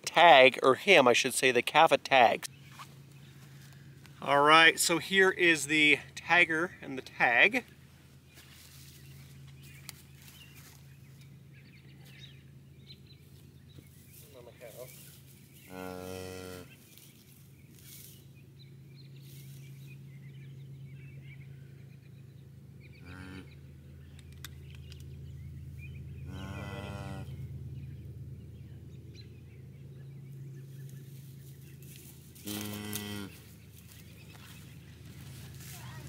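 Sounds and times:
steady low hum: 0:00.0 - 0:36.0
cattle mooing: 0:15.6 - 0:16.8, 0:23.0 - 0:23.6, 0:26.2 - 0:27.4, 0:32.4 - 0:33.4.

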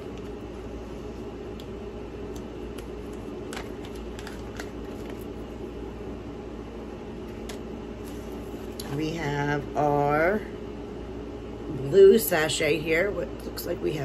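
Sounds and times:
low background hum: 0:00.0 - 0:14.0
packaging rustling: 0:02.3 - 0:05.5.

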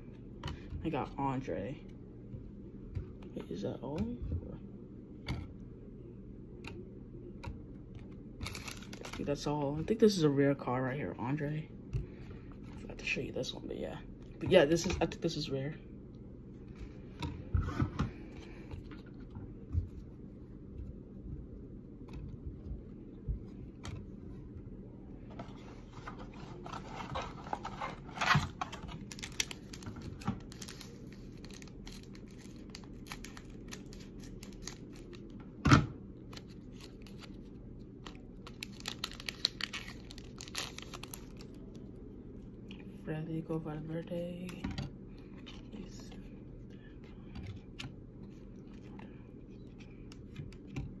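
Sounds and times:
wrapper crinkling: 0:08.4 - 0:09.3, 0:26.6 - 0:35.3, 0:38.1 - 0:41.8.

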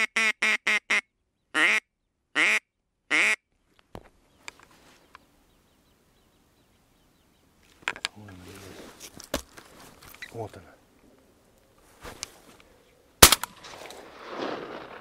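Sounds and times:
duck call quacks: 0:00.0 - 0:03.4.

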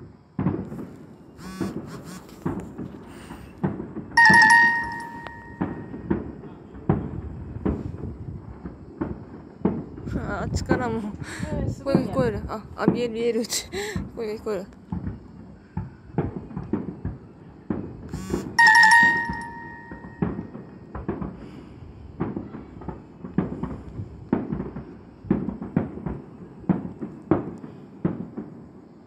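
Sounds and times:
distant fireworks thuds: 0:00.0 - 0:29.0
bell-like chime: 0:04.2 - 0:06.0, 0:18.6 - 0:20.4.

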